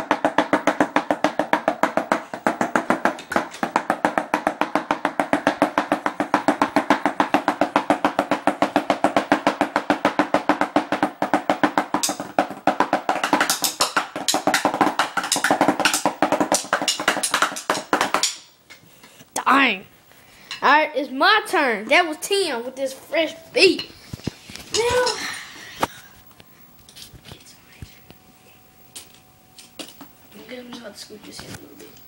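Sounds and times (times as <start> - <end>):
drumsticks on a drum pad: 0.0 - 19.2.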